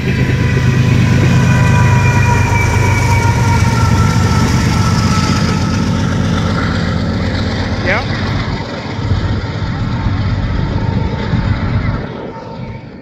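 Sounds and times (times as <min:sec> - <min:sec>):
diesel locomotive engine rumble: 0:00.0 - 0:13.0
high steady tones: 0:00.0 - 0:13.0.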